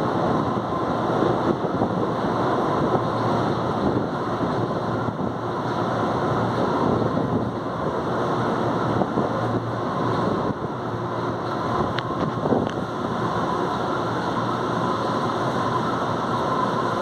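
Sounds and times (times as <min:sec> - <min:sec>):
metro platform ambient roar: 0:00.0 - 0:17.0.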